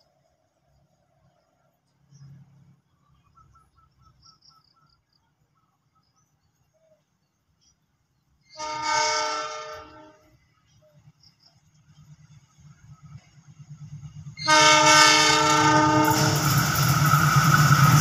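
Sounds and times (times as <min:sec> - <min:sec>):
faint bird chirps: 0:02.0 - 0:08.6
train rumble: 0:08.0 - 0:18.0
locomotive horn blast: 0:08.5 - 0:10.4, 0:14.4 - 0:16.6.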